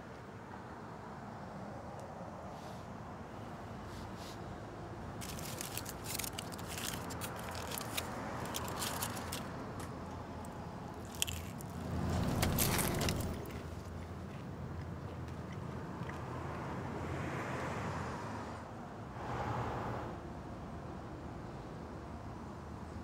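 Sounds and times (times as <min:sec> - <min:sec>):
aluminium foil crinkling: 0:05.2 - 0:10.0, 0:10.9 - 0:13.9.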